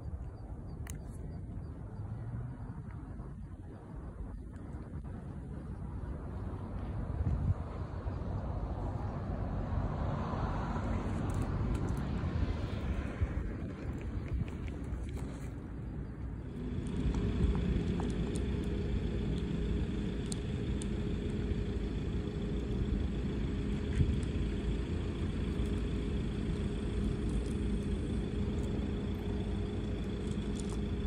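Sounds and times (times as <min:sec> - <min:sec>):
motor rumbling and humming: 0:10.8 - 0:31.0.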